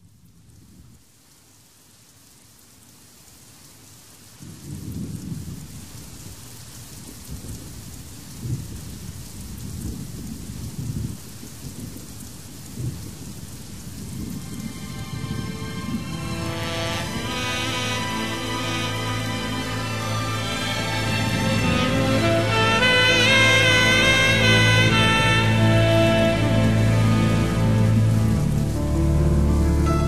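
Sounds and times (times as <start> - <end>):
rain falling: 0.0 - 30.0
thunder rumbling: 4.4 - 6.4, 7.1 - 19.0
music: 14.4 - 30.0.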